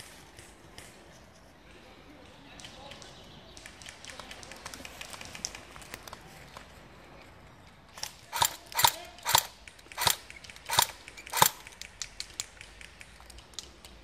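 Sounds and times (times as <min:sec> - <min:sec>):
faint clicks: 0:02.2 - 0:06.7, 0:07.6 - 0:14.0
airsoft gun shots: 0:08.0 - 0:11.7.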